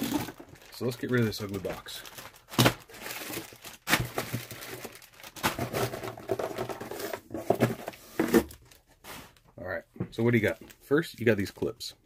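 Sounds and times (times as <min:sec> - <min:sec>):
plastic bags crinkling: 0:00.0 - 0:07.1.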